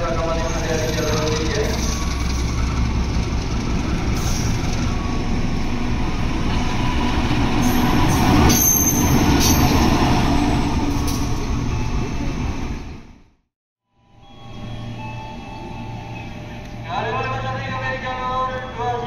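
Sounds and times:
train wheels rattling on track: 0.0s - 12.6s.

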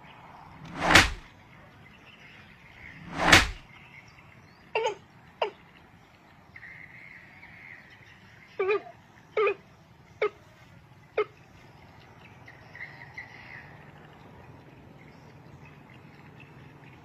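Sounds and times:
loud rushing whooshes: 0.6s - 1.3s, 2.9s - 3.6s.

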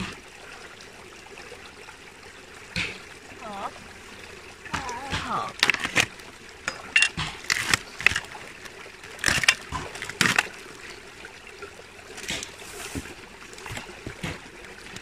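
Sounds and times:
stream trickling: 0.0s - 15.0s
short sharp clicks and splashes: 4.6s - 11.0s.

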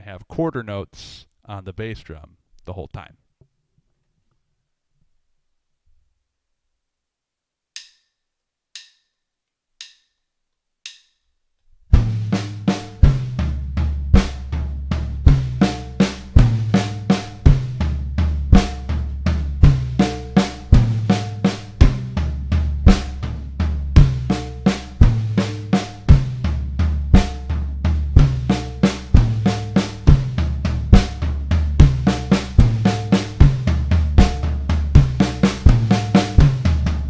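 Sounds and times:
drum fill on snare and toms: 7.8s - 8.2s, 8.8s - 9.2s, 9.8s - 10.2s, 10.8s - 11.2s, 11.9s - 37.0s
drumstick clicks: 7.8s - 9.2s, 9.8s - 11.3s
bass drum beats: 11.9s - 37.0s.

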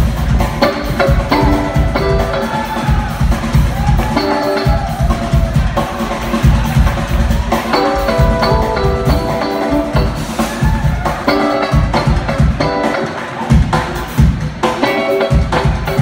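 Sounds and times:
jazz fusion band playing: 0.0s - 16.0s.

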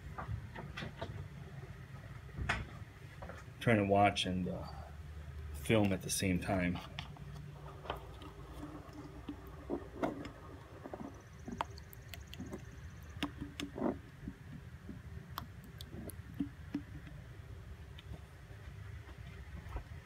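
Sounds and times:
low steady hum: 0.0s - 20.0s
faint clicks and knocks: 6.8s - 17.2s.

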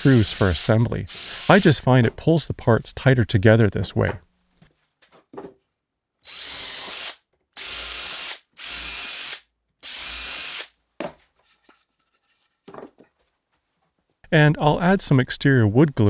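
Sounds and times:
cordless drill boring into wood: 0.0s - 1.6s, 6.2s - 10.7s.

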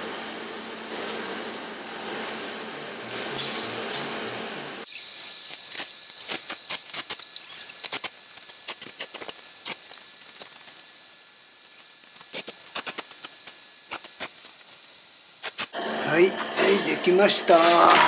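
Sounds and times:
welding arc hissing and crackling: 4.8s - 18.0s.

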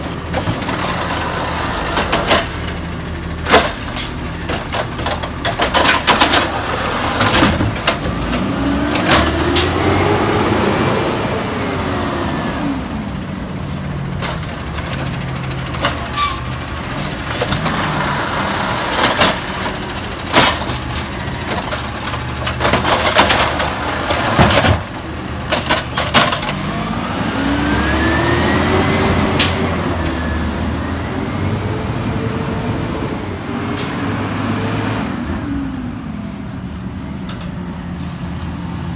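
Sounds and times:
garbage truck engine revving: 0.0s - 35.9s
cart banging against hopper: 3.4s - 9.9s, 17.2s - 26.7s
trash dropping: 18.9s - 26.6s.

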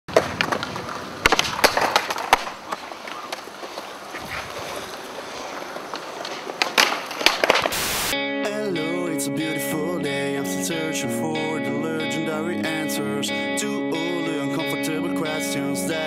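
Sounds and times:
skateboard clacking on ground: 0.1s - 7.8s
skateboard wheels rolling on concrete: 0.1s - 8.2s
guitar music: 8.1s - 16.0s.

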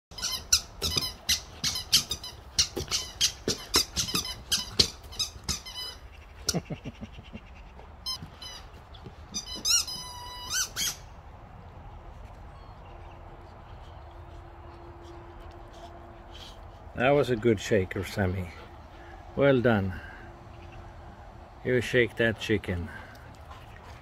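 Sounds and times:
rubber chicken toy squeaking: 0.1s - 6.0s, 9.3s - 11.0s.

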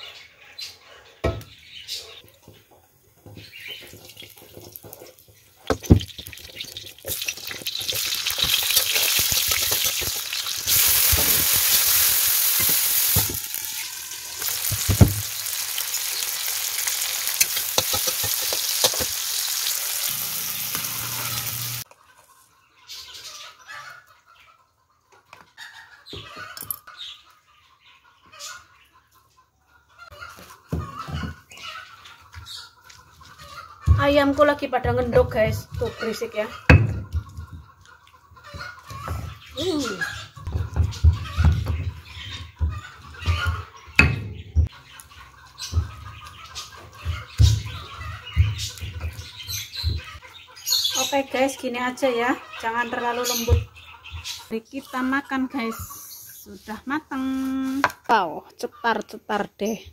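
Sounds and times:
vegetables sizzling in hot oil: 3.4s - 21.9s.

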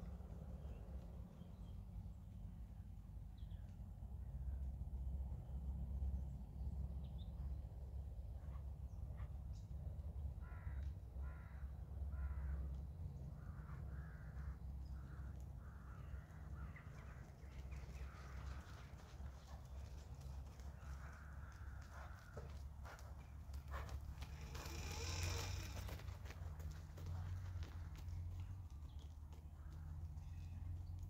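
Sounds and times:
crow cawing: 10.4s - 12.6s.

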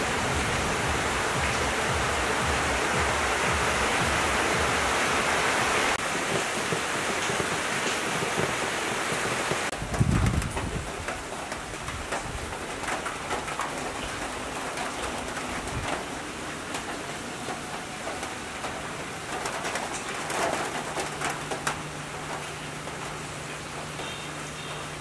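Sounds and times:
drops ticking and dripping: 0.0s - 25.0s
rain falling on leaves and paving: 0.0s - 25.0s.

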